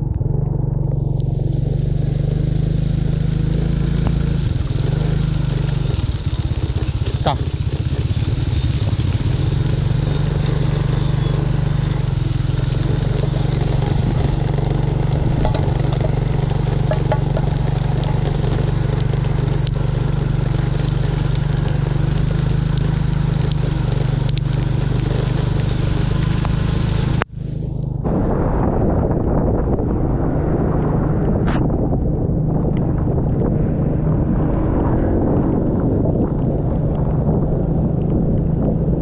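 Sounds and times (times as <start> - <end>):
small engine running: 0.0 - 27.6.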